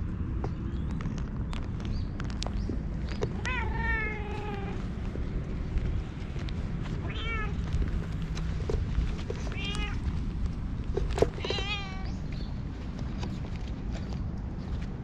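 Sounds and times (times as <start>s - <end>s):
cat meowing: 3.4s - 4.8s, 7.0s - 7.6s, 9.4s - 10.0s, 11.4s - 12.2s.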